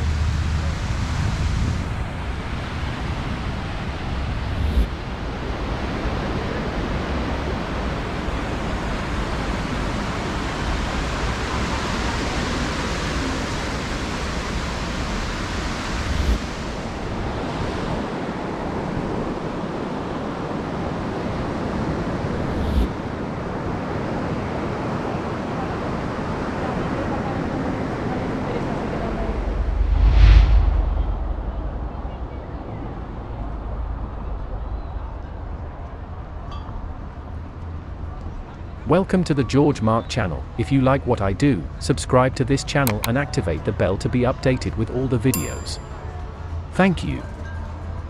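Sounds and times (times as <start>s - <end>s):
surf rushing: 0.0s - 33.6s
wind: 0.0s - 48.0s
low thumps: 29.2s - 33.8s.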